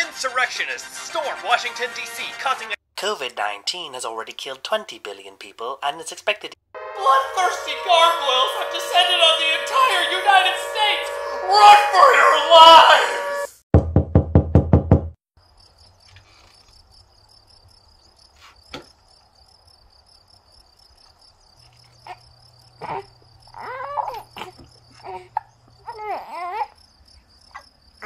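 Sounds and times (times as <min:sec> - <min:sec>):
low hum: 0:06.8 - 0:13.5
high gliding voice-like sounds: 0:07.0 - 0:13.5
crickets chirping: 0:07.2 - 0:13.5, 0:15.4 - 0:28.0
knocking on door: 0:13.8 - 0:15.2.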